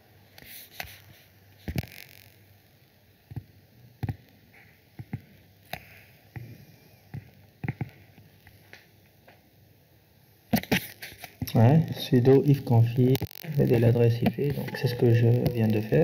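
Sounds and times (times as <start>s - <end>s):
faint low hum: 11.4s - 16.0s.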